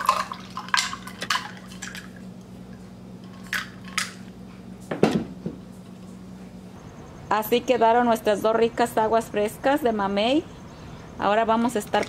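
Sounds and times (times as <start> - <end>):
ice cubes clinking in glass: 11.7 - 12.0.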